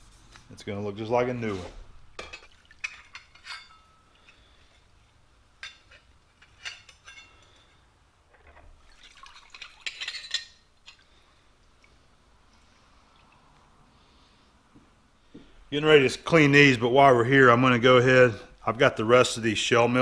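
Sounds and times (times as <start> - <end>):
steel cutters clinking together: 2.2 - 4.0
liquid dripping into a tub: 8.8 - 9.9, 10.9 - 13.8.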